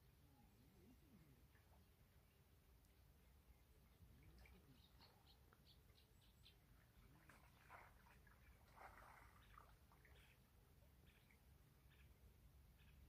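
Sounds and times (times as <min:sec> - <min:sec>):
bird chirps: 0:03.9 - 0:06.7.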